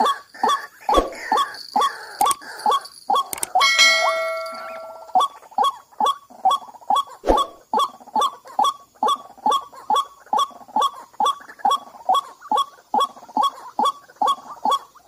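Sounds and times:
waterhens calling: 0:00.0 - 0:15.0
bell-like chime: 0:01.3 - 0:05.4.

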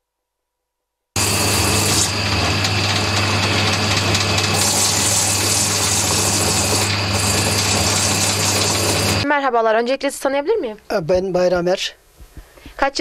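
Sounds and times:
electric motor humming: 0:01.2 - 0:09.2.

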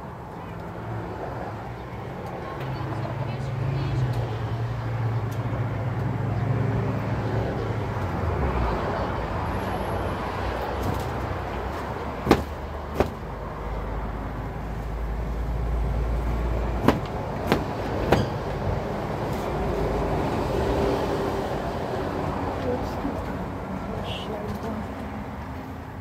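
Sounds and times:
wooden boxes knocking: 0:12.3 - 0:13.3, 0:16.8 - 0:18.4.

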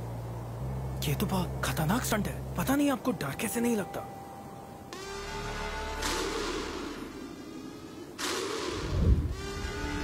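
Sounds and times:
low music drone: 0:00.0 - 0:10.0
rushing whoosh: 0:08.2 - 0:09.8.

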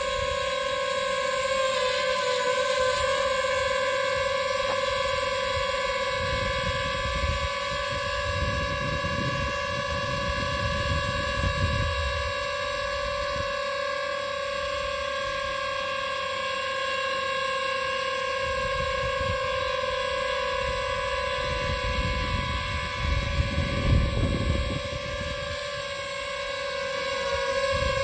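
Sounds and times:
drone propellers whining: 0:00.0 - 0:28.0
low rumbling wind gusts: 0:06.2 - 0:12.3, 0:21.4 - 0:25.6.

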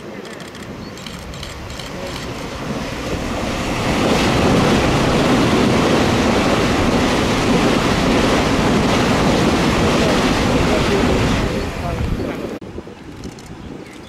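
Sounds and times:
electric train passing: 0:00.4 - 0:11.8.

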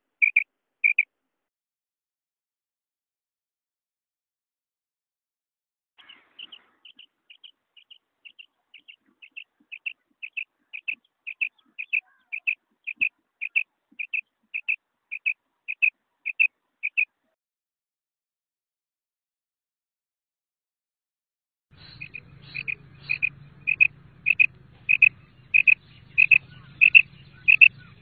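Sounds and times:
quail two-note call: 0:00.2 - 0:01.0, 0:21.8 - 0:27.8.

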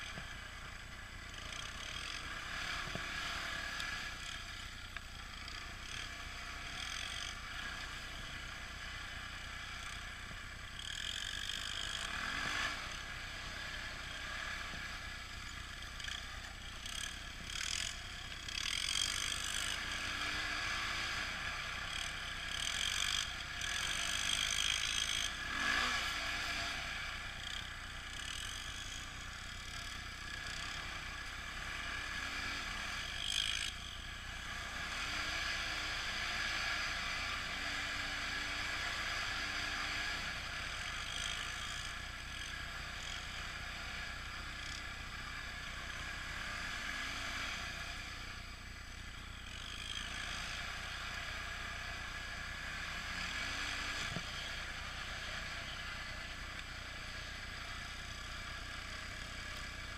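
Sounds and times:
quad bike engine running: 0:00.0 - 0:59.9.

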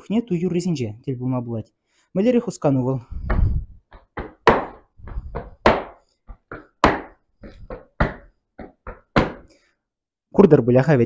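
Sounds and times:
boots stamping on tiled floor: 0:03.3 - 0:09.6.

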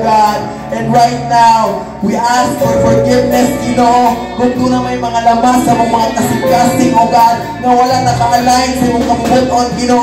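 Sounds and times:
keyboard: 0:00.0 - 0:10.0
drum kit: 0:01.2 - 0:10.0
electric guitar: 0:01.7 - 0:10.0.

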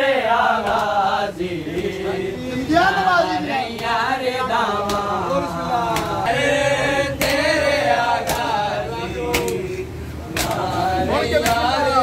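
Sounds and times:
men chanting a lament: 0:00.0 - 0:12.0
hands slapping chest: 0:00.6 - 0:01.0, 0:04.8 - 0:05.2, 0:05.9 - 0:06.3, 0:07.2 - 0:07.4, 0:08.2 - 0:08.6, 0:09.3 - 0:09.6, 0:10.3 - 0:10.7.

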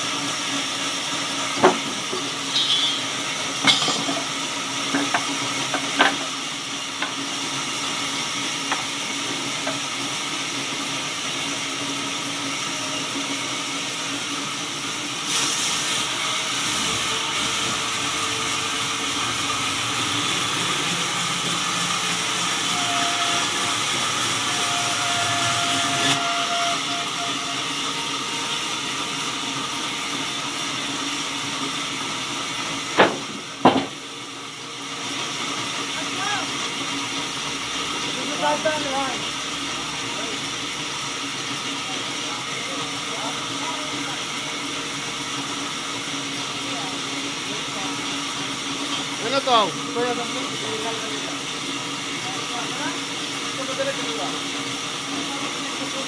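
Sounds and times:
band sawmill cutting log: 0:00.0 - 0:56.0.

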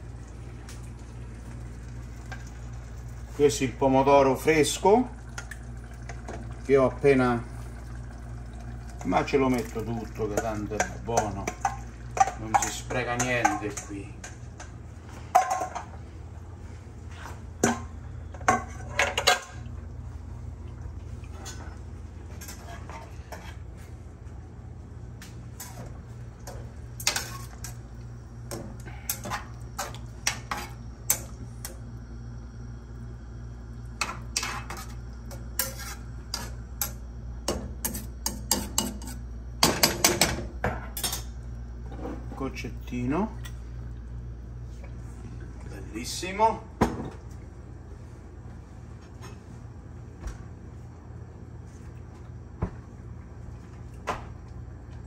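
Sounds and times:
metal utensil scraping frying pan: 0:35.6 - 0:36.6.

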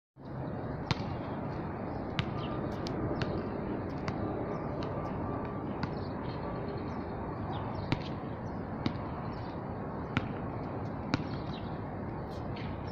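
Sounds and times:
basketballs bouncing on court: 0:00.9 - 0:01.2, 0:02.2 - 0:02.5, 0:03.1 - 0:06.1, 0:07.8 - 0:08.1, 0:08.8 - 0:09.1, 0:10.2 - 0:10.5, 0:11.1 - 0:11.6.

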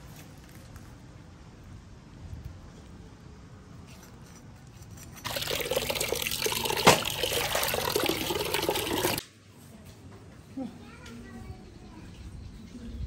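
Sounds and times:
water splashing into metal pot: 0:05.2 - 0:09.2.

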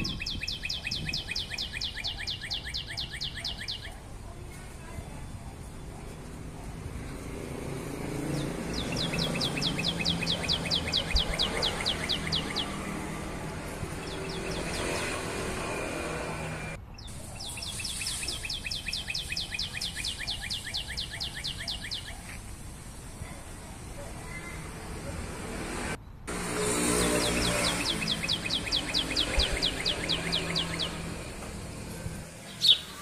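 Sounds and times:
bird singing fast trill: 0:00.0 - 0:04.0, 0:08.3 - 0:13.2, 0:13.9 - 0:15.2, 0:16.9 - 0:22.4, 0:26.8 - 0:31.3, 0:32.4 - 0:33.0.

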